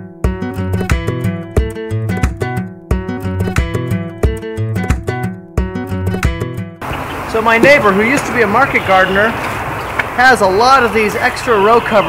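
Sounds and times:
acoustic guitar strumming: 0.2 - 9.4.

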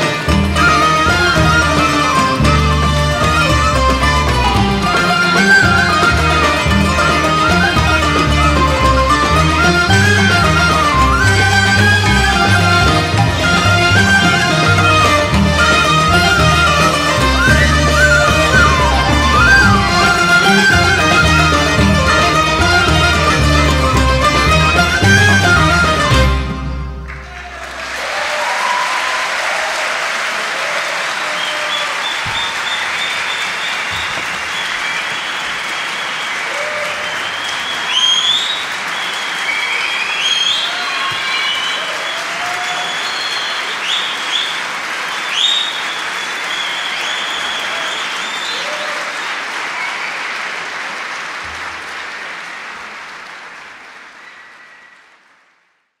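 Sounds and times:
large audience applauding: 0.0 - 56.0
high whistles: 13.4 - 21.7, 31.3 - 50.3, 54.2 - 55.2.

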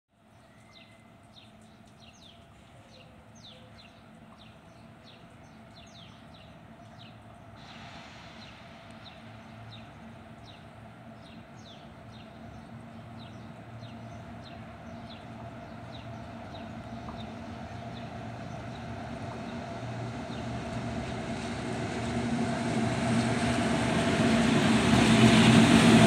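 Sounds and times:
small birds chirping: 0.3 - 7.6, 8.4 - 20.6
electric locomotive humming: 0.4 - 26.0
hiss: 7.6 - 9.6.

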